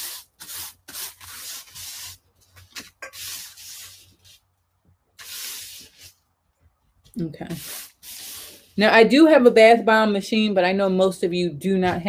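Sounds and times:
hand brushing across paper: 0.0s - 4.5s, 5.2s - 6.2s, 7.5s - 8.8s.

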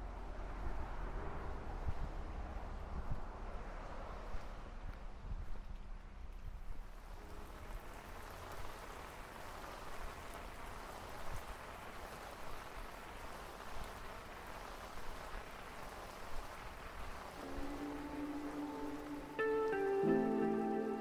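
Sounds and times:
low rumble: 0.0s - 7.9s
rain on wet pavement: 3.6s - 21.0s
louder raindrops: 5.8s - 21.0s.

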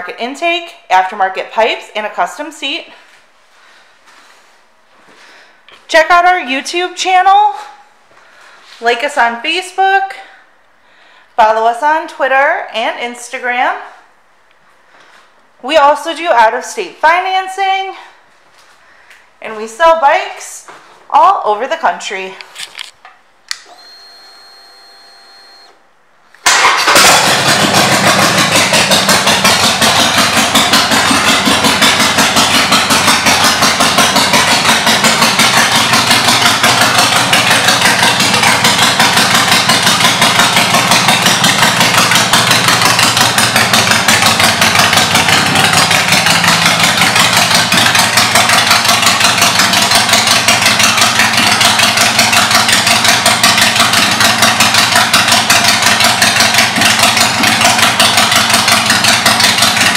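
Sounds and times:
motorcycle engine starting and idling: 26.4s - 59.9s.

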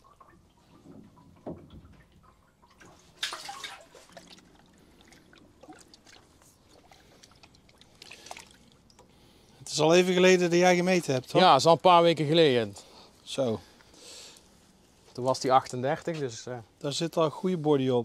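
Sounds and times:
water splashing and dripping: 0.0s - 9.6s
loud splash: 3.1s - 4.4s.

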